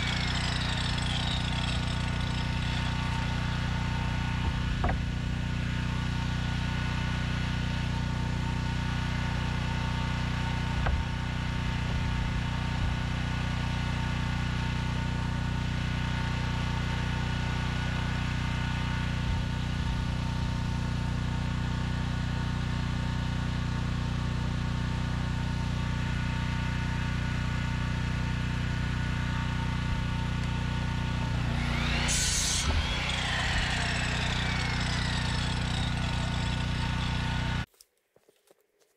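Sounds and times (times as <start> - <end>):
miter saw cutting board: 0.0 - 5.4, 30.4 - 37.7
small engine droning: 0.0 - 37.7.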